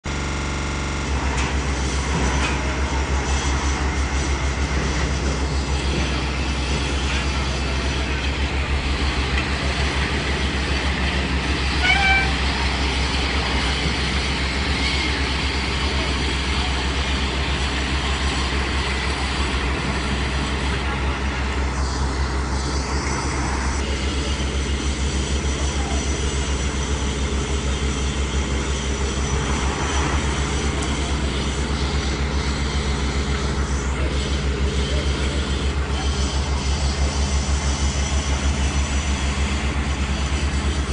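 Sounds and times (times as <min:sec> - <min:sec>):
diesel machinery rumbling: 0:00.0 - 0:40.9.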